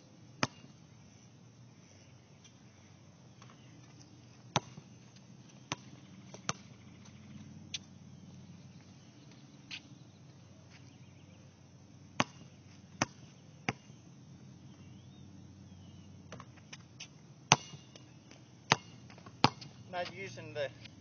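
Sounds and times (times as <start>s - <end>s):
basketball bouncing on hard court: 0.4s - 0.7s, 4.5s - 4.9s, 5.5s - 7.2s, 12.2s - 13.9s, 17.5s - 20.2s.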